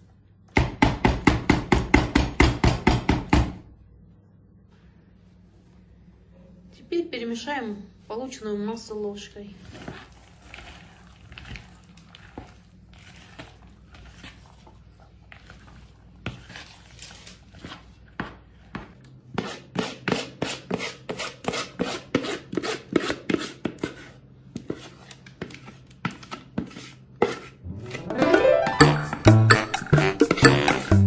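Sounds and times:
spoon stirring and scraping batter: 9.2 - 27.6.

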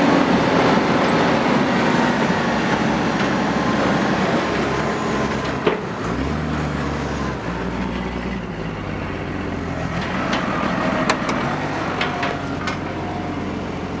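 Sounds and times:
diesel engine running in cab: 0.0 - 14.0.

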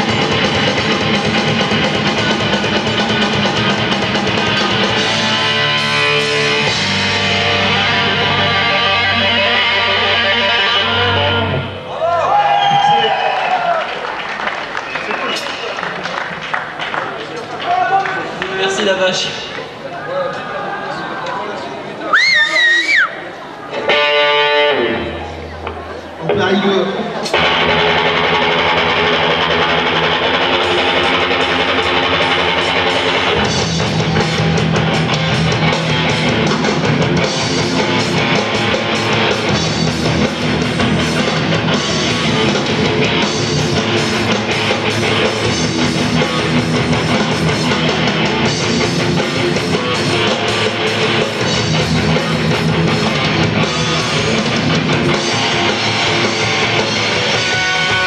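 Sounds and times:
drum kit: 0.0 - 10.0, 27.2 - 58.0
electric guitar: 0.0 - 12.2, 23.7 - 58.0.

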